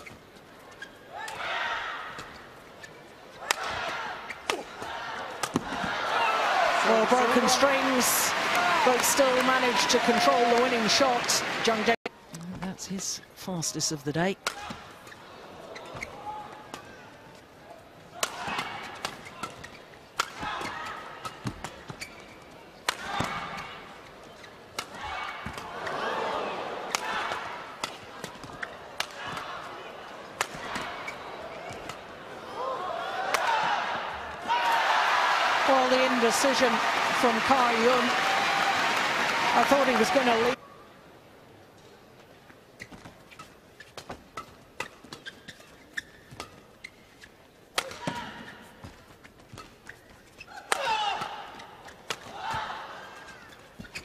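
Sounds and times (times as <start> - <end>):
shoes squeaking on floor: 0.0 - 1.1, 19.2 - 20.0, 20.6 - 22.6, 30.7 - 32.0, 42.7 - 47.5, 48.4 - 50.6, 53.1 - 54.0
crowd noise: 2.0 - 13.9, 14.7 - 21.9, 22.6 - 42.2
racquets striking shuttlecock: 50.6 - 51.3.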